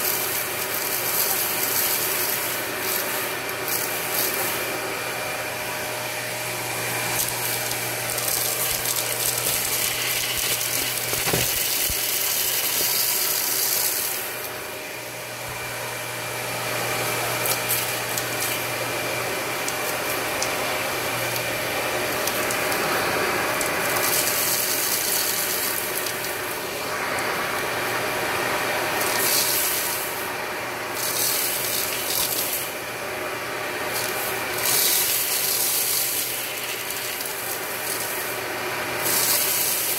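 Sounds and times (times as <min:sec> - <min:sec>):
vacuum cleaner running: 0:00.0 - 0:39.9
debris rattling up vacuum: 0:06.4 - 0:14.5.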